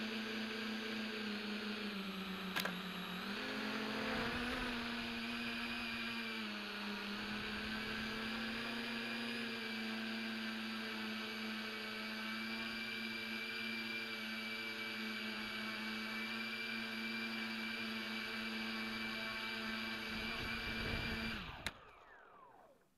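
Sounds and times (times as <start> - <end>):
drone propellers humming: 4.0 - 9.3, 19.9 - 21.7.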